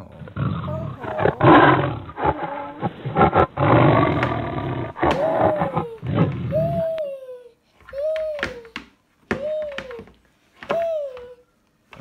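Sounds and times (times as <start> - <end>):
animal roars: 0.0 - 6.8.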